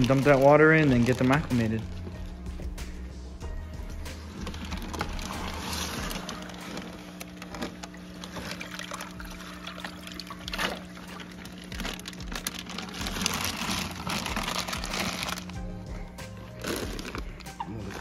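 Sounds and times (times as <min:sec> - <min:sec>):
plastic bag handled: 0:00.0 - 0:02.8, 0:04.0 - 0:18.0
water splashing into plastic bucket: 0:04.5 - 0:15.4.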